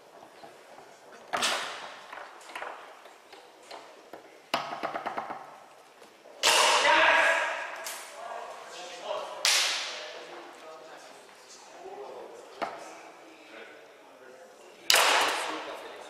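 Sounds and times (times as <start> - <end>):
foosball clatter: 1.2 - 3.1, 3.7 - 5.6
foosball ball knocking: 4.1 - 5.6.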